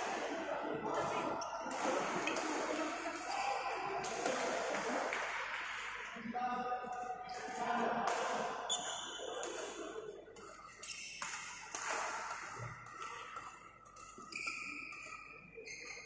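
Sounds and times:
racket striking shuttlecock: 0:10.4 - 0:15.3
shoes squeaking on court: 0:10.6 - 0:11.4, 0:14.0 - 0:16.0.

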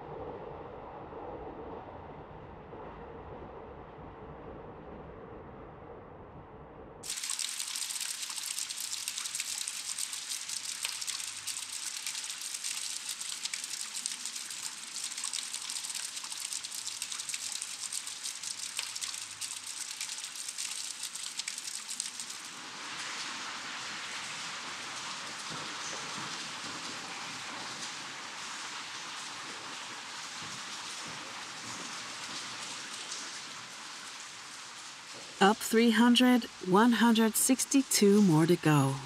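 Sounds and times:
low hum: 0:00.0 - 0:07.0
water running and splashing: 0:07.0 - 0:35.4.

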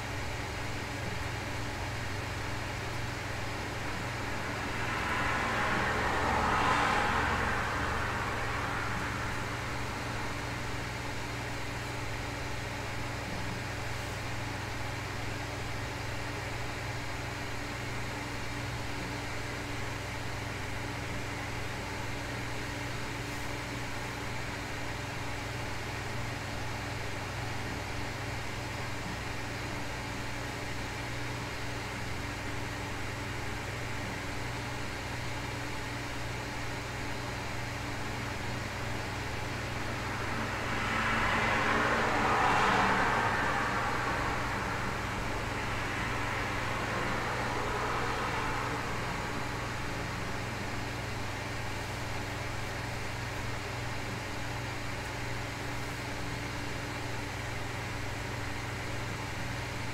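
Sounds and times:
constant low hum: 0:00.0 - 0:59.9
white noise hiss: 0:32.0 - 0:59.9.

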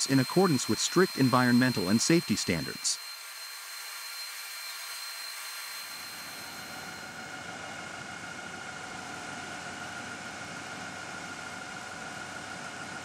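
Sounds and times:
high whine: 0:00.0 - 0:07.5
machine drone with hiss: 0:00.0 - 0:07.5.

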